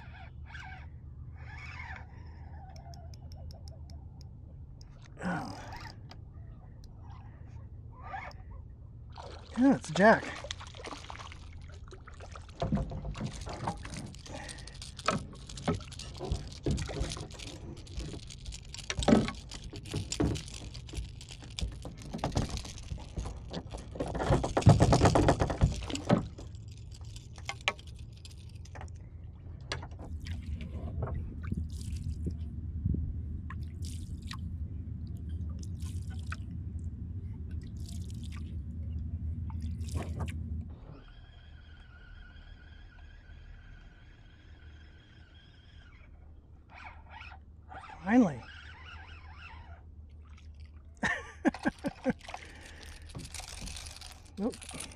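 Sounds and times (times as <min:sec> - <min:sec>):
fish thrashing at the surface: 0:09.1 - 0:27.3
water splashing and dripping: 0:09.1 - 0:27.6, 0:31.3 - 0:32.4, 0:33.5 - 0:40.4, 0:50.1 - 0:54.9
steady low rumble: 0:26.2 - 0:42.0.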